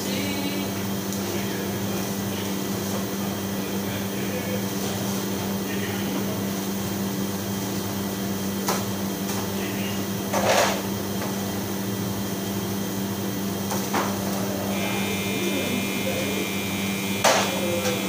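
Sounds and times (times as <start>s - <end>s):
electrical hum and fan noise: 0.0s - 18.0s.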